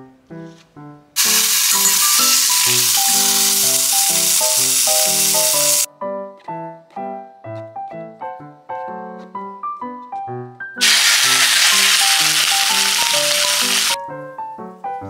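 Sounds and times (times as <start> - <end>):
light keyboard music: 0.0 - 15.0
meat sizzling in a pot: 1.2 - 5.9, 10.8 - 14.0.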